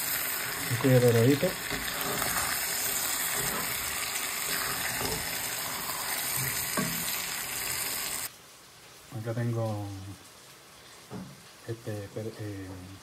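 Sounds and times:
wooden spoon stirring: 0:00.0 - 0:08.2
chicken sizzling in hot oil: 0:00.0 - 0:08.3.

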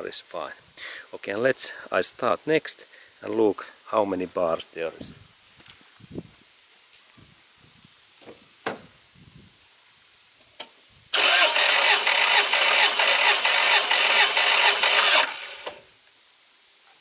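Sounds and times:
starter motor cranking engine: 0:11.1 - 0:15.8.

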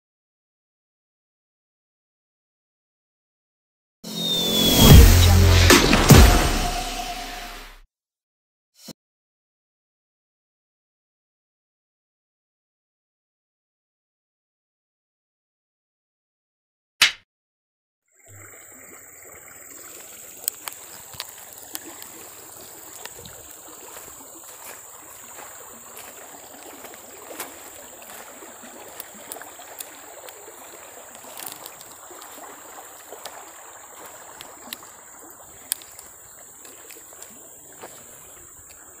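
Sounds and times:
river water trickling: 0:18.1 - 0:39.0.

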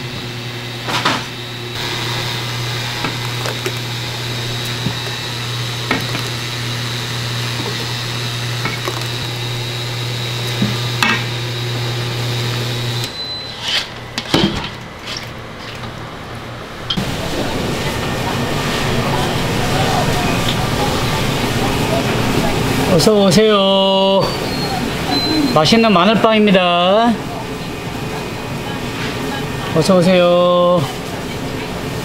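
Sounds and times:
electric motor hum: 0:00.0 - 0:13.2.

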